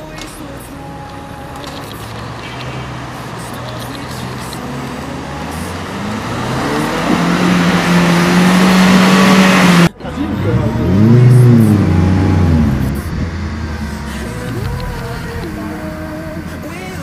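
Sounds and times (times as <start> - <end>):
engine revving hard: 4.2 - 15.8.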